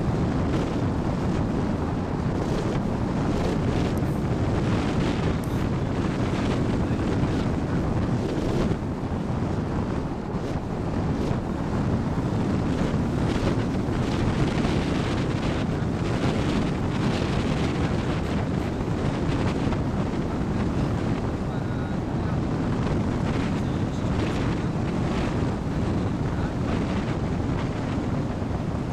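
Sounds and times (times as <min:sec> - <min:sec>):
wind rushing over microphone: 0:00.0 - 0:28.9.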